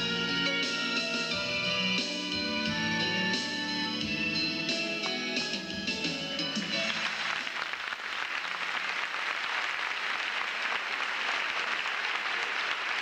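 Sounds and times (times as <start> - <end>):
song last notes: 0.0 - 7.1
audience applauding: 6.5 - 13.0.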